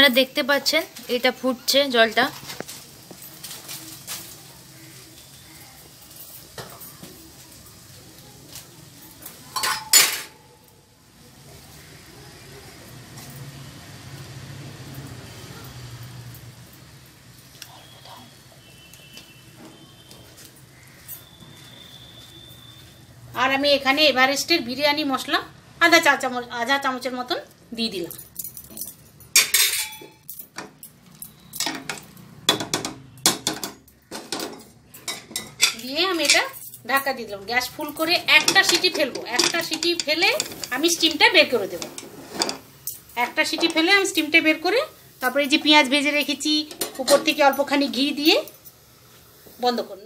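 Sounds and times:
water boiling in a pot: 0:00.1 - 0:22.8, 0:37.0 - 0:50.0
metallic clatter of kitchen utensils: 0:09.2 - 0:10.6, 0:28.0 - 0:48.8.

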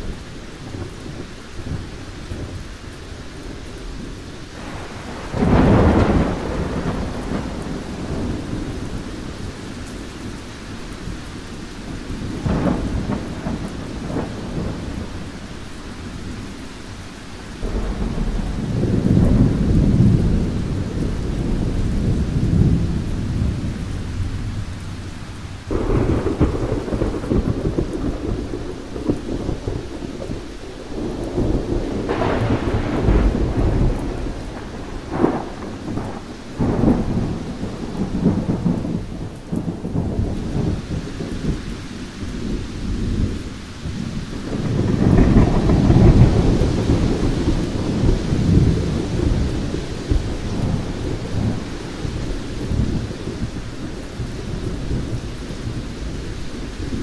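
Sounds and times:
steady rain: 0:00.0 - 0:57.0
rolling thunder: 0:03.3 - 0:57.0
sharp thunder cracks: 0:04.6 - 0:09.2, 0:25.7 - 0:41.7, 0:42.3 - 0:55.2
thunder clap: 0:04.6 - 0:09.4, 0:12.3 - 0:15.2, 0:25.7 - 0:56.2.

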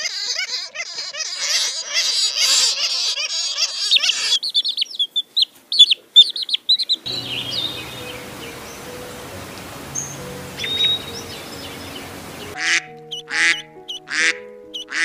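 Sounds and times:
flying foxes squealing and chattering: 0:00.0 - 0:05.1, 0:09.9 - 0:12.5
outdoor hiss with low hum: 0:04.5 - 0:12.5
sharp high chirps: 0:09.9 - 0:14.0.

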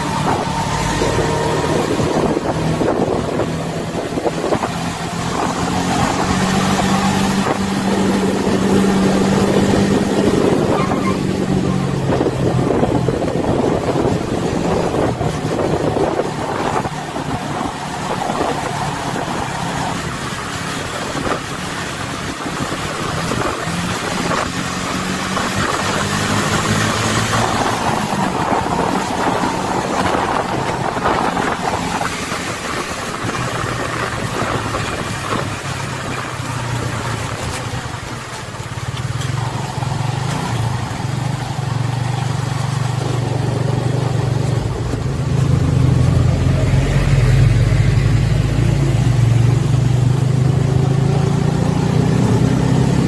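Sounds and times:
road and wind noise: 0:00.0 - 0:53.0
vehicle engine droning: 0:00.0 - 0:53.0.

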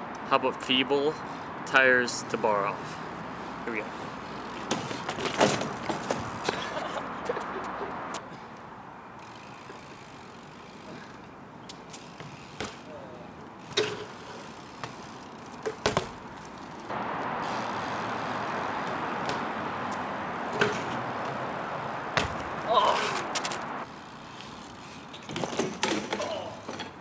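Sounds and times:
bike knocks and clanks on concrete: 0:04.5 - 0:06.8, 0:12.0 - 0:12.9, 0:13.6 - 0:16.8, 0:20.5 - 0:21.0, 0:22.2 - 0:23.6, 0:25.2 - 0:27.0.

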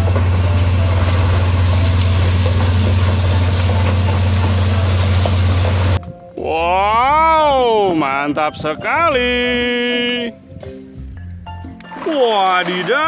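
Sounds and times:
rock sliding and spilling: 0:00.0 - 0:06.0, 0:11.9 - 0:13.0
truck diesel engine humming: 0:00.0 - 0:07.4.

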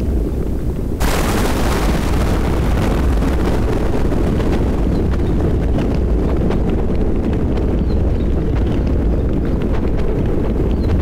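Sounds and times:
thunder rumbling: 0:00.9 - 0:11.0
rain falling: 0:01.0 - 0:04.9
crackling thunderclap: 0:01.0 - 0:09.1.

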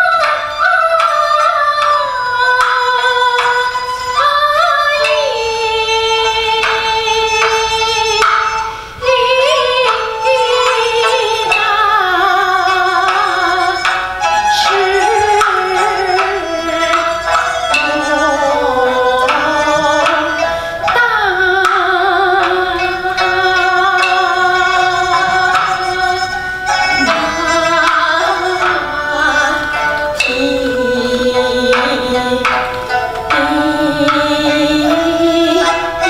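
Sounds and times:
instrumental accompaniment: 0:00.0 - 0:36.0
sharp percussion strikes: 0:00.0 - 0:36.0
opera singing with vibrato: 0:17.7 - 0:24.8, 0:27.0 - 0:36.0.

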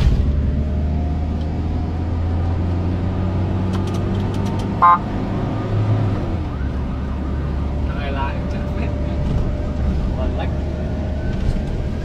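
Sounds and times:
car horn toot: 0:04.8 - 0:05.2.

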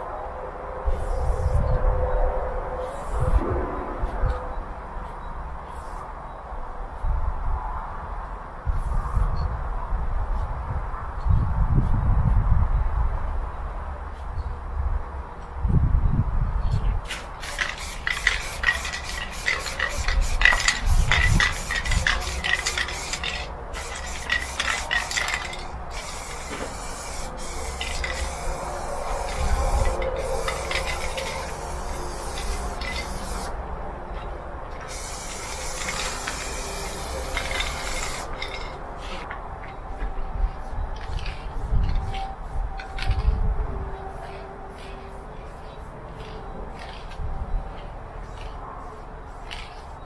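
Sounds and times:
spray can hissing: 0:01.0 - 0:01.5, 0:02.8 - 0:03.2, 0:05.6 - 0:06.0, 0:17.0 - 0:33.6, 0:34.8 - 0:39.3, 0:44.1 - 0:46.9
spray can ball rattling: 0:17.0 - 0:33.6, 0:34.7 - 0:39.2, 0:49.3 - 0:50.0.

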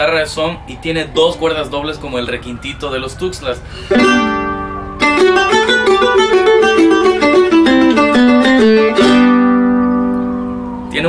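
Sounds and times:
small guitar chords and picked notes: 0:03.9 - 0:11.0.

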